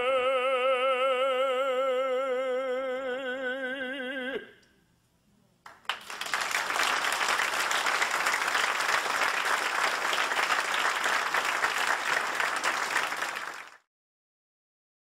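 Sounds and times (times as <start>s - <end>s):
audience applauding: 5.7s - 13.9s.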